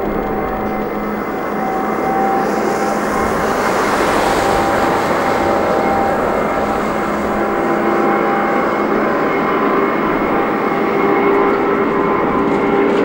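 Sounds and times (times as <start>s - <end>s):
faint whining tones: 0.0s - 13.0s
jet engines running: 0.0s - 13.0s.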